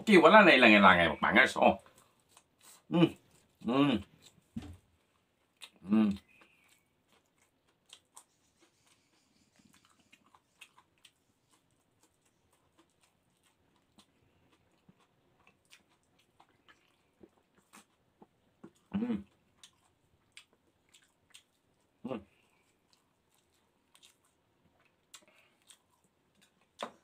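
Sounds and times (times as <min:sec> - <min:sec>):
lip smacks and chewing clicks: 0:05.1 - 0:21.9, 0:22.5 - 0:27.0
person humming mm: 0:18.9 - 0:19.3.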